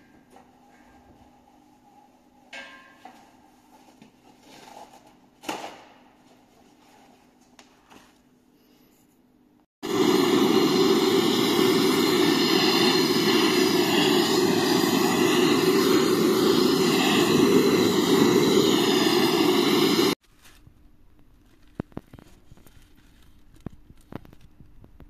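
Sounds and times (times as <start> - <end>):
gas torch flame hissing: 9.8 - 20.2.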